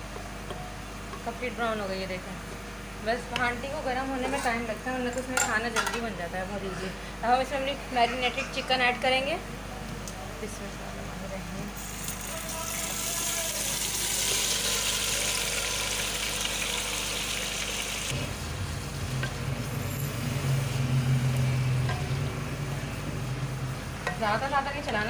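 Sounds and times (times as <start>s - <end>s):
chicken sizzling in hot oil: 11.8s - 23.8s.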